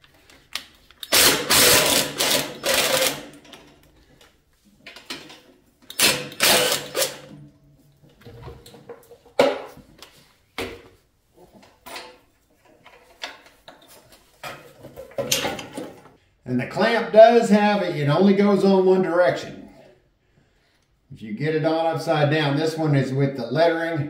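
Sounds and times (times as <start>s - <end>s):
impact driver running: 1.0s - 3.4s, 5.9s - 7.3s.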